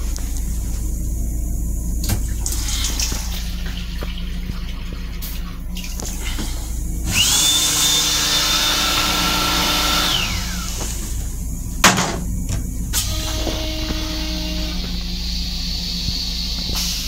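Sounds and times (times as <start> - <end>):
hand dryer whine: 6.0 - 17.0.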